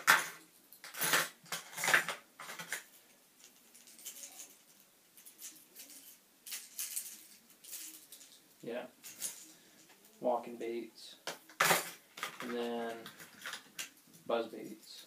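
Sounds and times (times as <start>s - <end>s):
plastic lures clicking and rattling: 0.0s - 8.4s, 11.5s - 14.3s.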